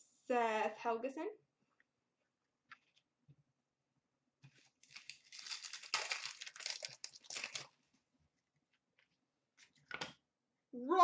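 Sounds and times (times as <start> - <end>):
wrapper tearing and crinkling: 4.6 - 7.8.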